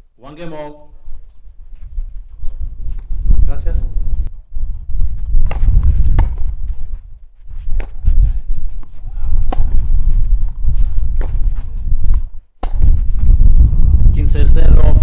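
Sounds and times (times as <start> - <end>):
low steady rumble: 0.9 - 15.0
tennis ball struck by rackets: 5.4 - 6.5, 8.8 - 10.0, 11.1 - 11.4, 12.6 - 13.2.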